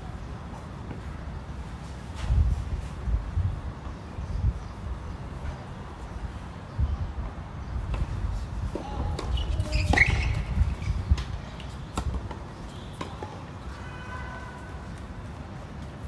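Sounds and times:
wind rumble on microphone: 2.1 - 12.4.

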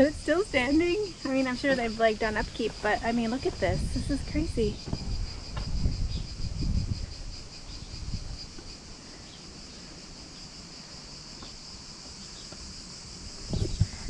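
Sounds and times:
low rumbling thumps: 0.0 - 8.9, 13.3 - 14.0
insects chirping: 0.0 - 14.0.

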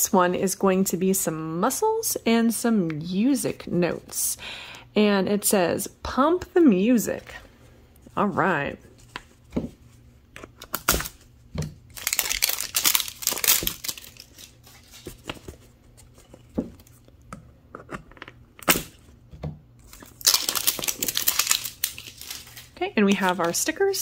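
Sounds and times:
paper shell ripping: 11.9 - 15.3, 19.8 - 22.8
paper crinkling: 11.9 - 17.1, 19.8 - 23.7.

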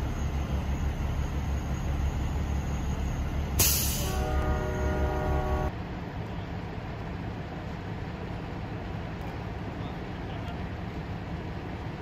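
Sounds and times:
loud hiss: 3.6 - 4.2
horn holding a chord: 4.1 - 5.7.

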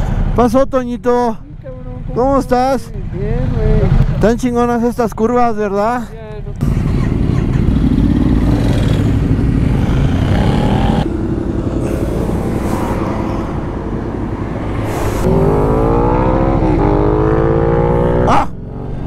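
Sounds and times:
motorcycle engine accelerating: 6.6 - 19.0.

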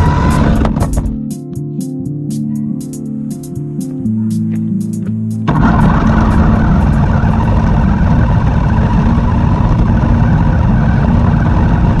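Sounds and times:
toy car wheels rumbling on asphalt: 5.5 - 12.0.

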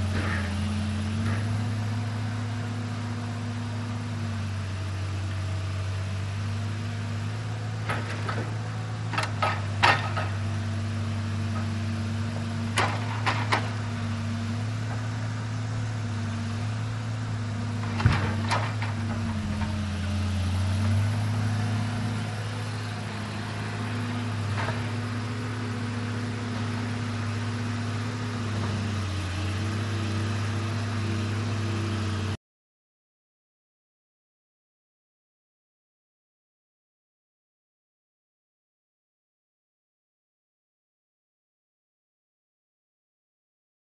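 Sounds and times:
truck diesel engine running: 0.0 - 32.4.

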